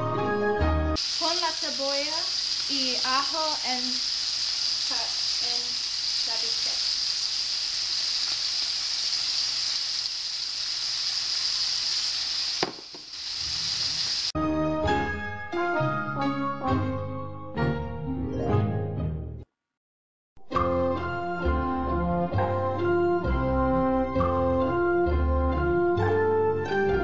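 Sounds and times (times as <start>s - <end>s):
steak sizzling in a pan: 1.0s - 14.4s.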